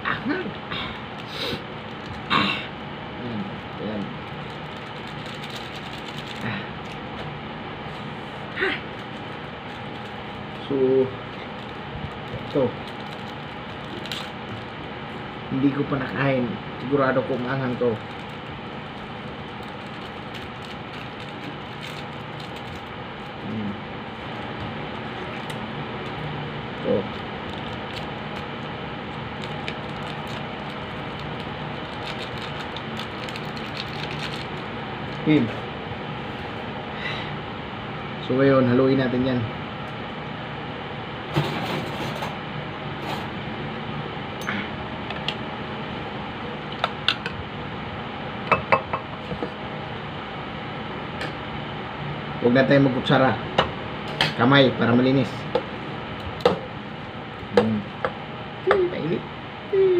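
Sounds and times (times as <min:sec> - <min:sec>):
air-conditioner hum: 0:00.0 - 0:59.9
plastic packets rustling: 0:03.5 - 0:07.1, 0:08.8 - 0:14.7, 0:17.4 - 0:23.4, 0:26.8 - 0:34.7
man humming: 0:23.4 - 0:23.8, 0:58.7 - 0:59.1, 0:59.7 - 0:59.9.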